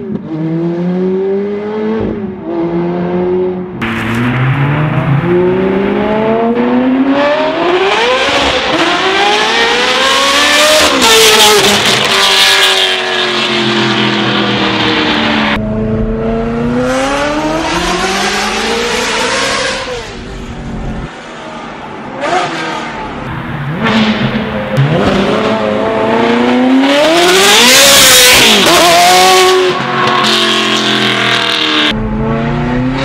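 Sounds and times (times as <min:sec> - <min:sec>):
loud car exhaust accelerating: 0:02.7 - 0:13.0, 0:23.0 - 0:33.0.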